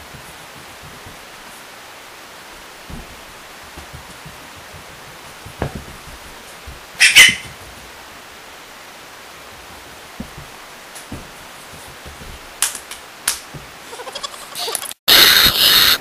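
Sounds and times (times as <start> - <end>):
steady hiss: 0.0 - 16.0
thump: 2.9 - 3.2, 5.4 - 6.8
small dog yelping: 7.0 - 7.5.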